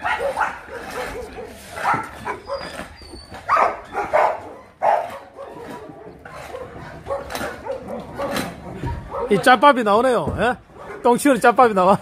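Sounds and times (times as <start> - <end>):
dog barking: 0.0 - 2.8, 3.5 - 9.4, 10.7 - 11.1.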